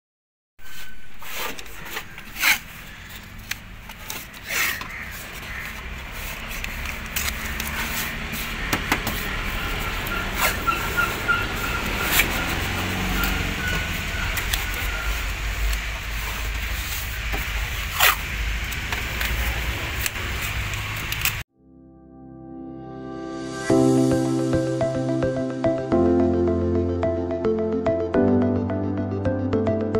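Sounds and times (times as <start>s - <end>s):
paper rustling: 0.6s - 13.0s.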